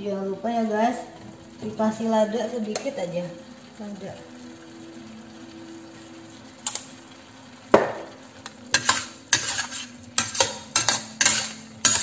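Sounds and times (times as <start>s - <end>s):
metal spatula scraping a wok: 8.5s - 12.0s.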